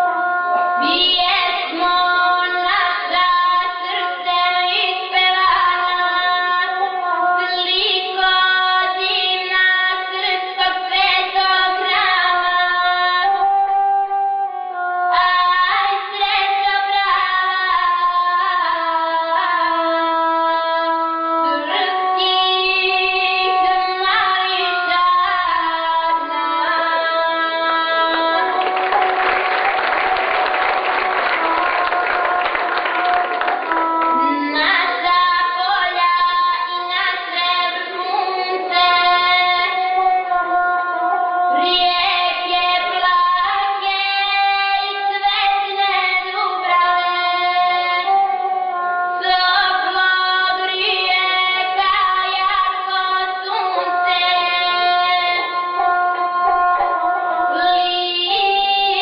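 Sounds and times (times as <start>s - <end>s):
woman singing: 0.0s - 29.5s, 33.1s - 59.0s
audience applause: 28.4s - 35.0s.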